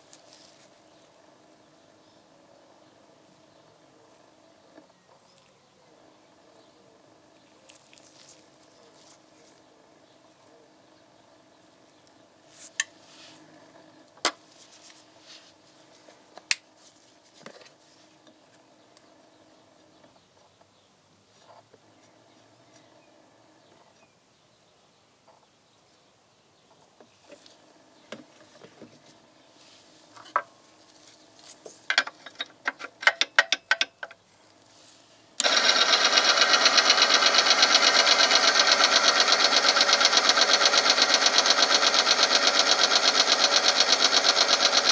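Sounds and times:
test machine pulsing mechanical noise: 35.3s - 44.9s.

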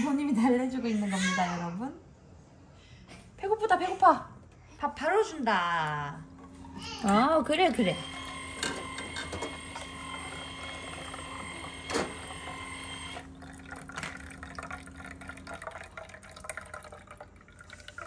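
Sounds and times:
machine whine: 6.5s - 14.2s
liquid pouring into bottle: 7.6s - 18.0s
water dripping: 13.2s - 18.0s.

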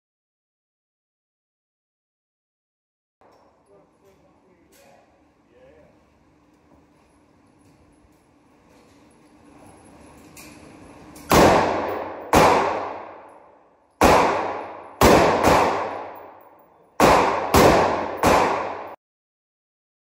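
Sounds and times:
rifle shots echoing indoors: 11.1s - 19.0s.

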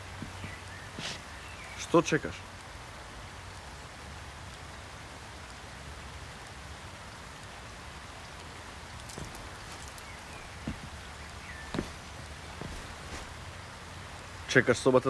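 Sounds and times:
soft knocks: 9.1s - 13.4s.

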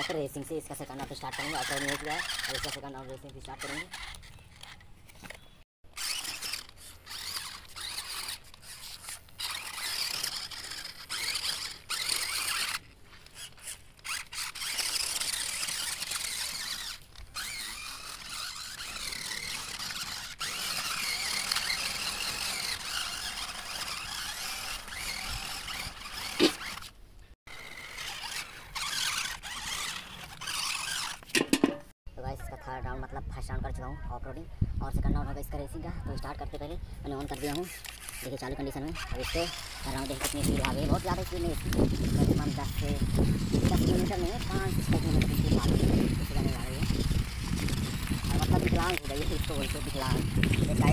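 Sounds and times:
toy car motors whining: 0.0s - 31.4s, 37.1s - 50.9s.

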